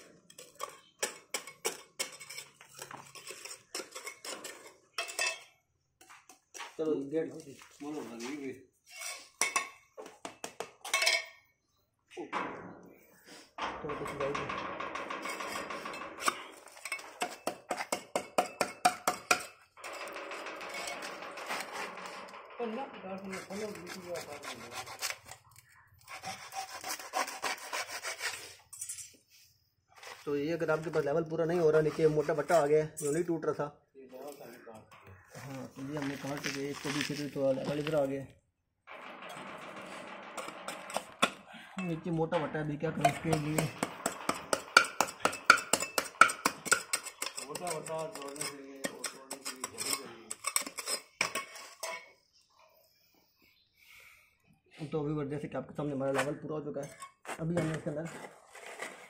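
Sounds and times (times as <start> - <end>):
hand hoe scraping concrete and gravel: 0.0 - 11.1, 15.0 - 33.3, 35.3 - 38.2, 38.9 - 52.2, 56.1 - 59.0
hacksaw cutting plastic pipe: 26.1 - 28.5.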